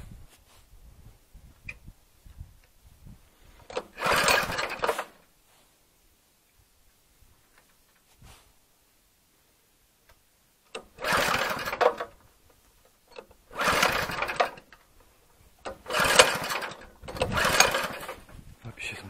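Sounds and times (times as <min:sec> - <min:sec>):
small petrol engine pull-started: 0:03.6 - 0:05.2, 0:10.7 - 0:12.3, 0:13.1 - 0:18.4.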